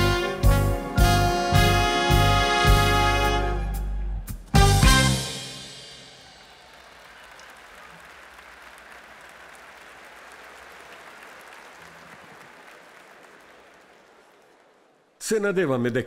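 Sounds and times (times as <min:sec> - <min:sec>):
audience applauding: 0:06.1 - 0:15.2.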